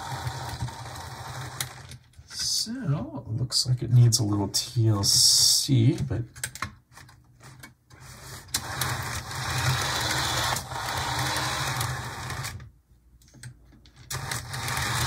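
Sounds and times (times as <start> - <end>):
model train motor whirring: 0.0 - 1.9, 8.2 - 12.6, 14.1 - 15.0.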